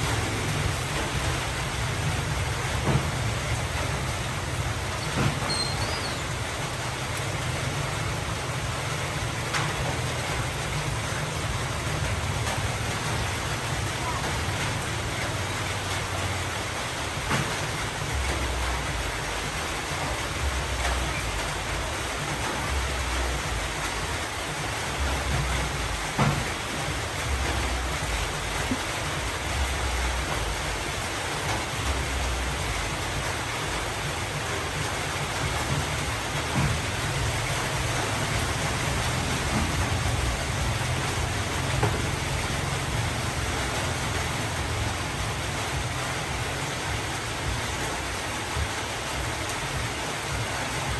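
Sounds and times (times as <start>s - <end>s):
steady rain-like hiss: 0.0s - 50.9s.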